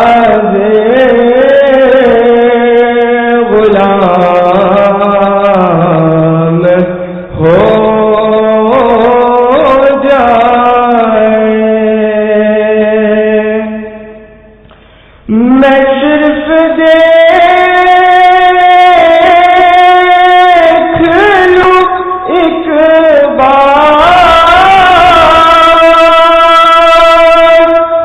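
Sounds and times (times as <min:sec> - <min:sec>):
person singing devotional song: 0:00.0 - 0:28.0.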